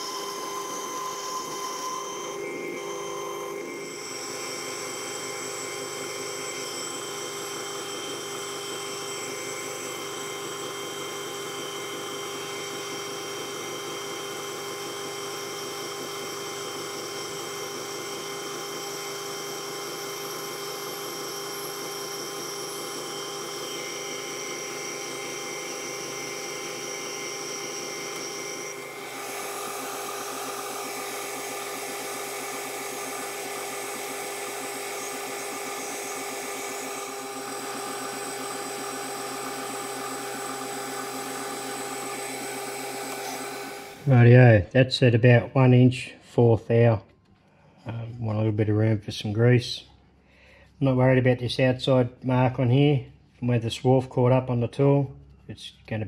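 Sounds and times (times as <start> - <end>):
boring bar cutting steel: 0.0 - 44.2
metal lathe whine: 0.0 - 44.3.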